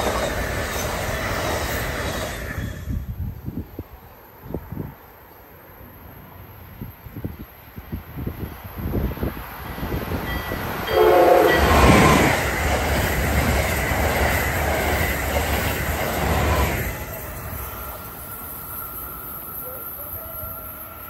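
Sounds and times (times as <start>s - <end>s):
train rushing past: 0.0s - 5.0s, 5.9s - 21.0s
train horn blast: 10.8s - 12.5s.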